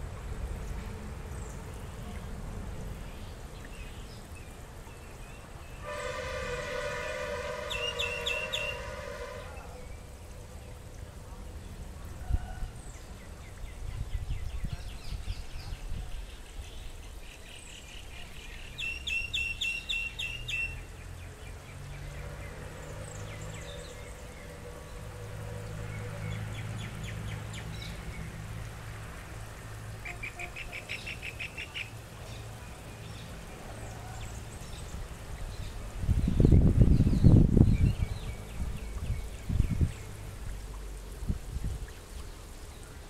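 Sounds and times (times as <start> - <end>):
songbird trilling: 7.7 - 8.8.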